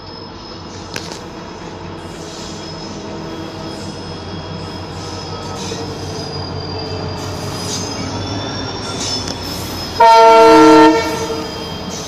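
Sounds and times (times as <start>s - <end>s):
high-pitched wheel squeal: 0.0s - 12.0s
locomotive wheels on rails: 0.0s - 12.0s
locomotive horn blast: 10.0s - 11.6s.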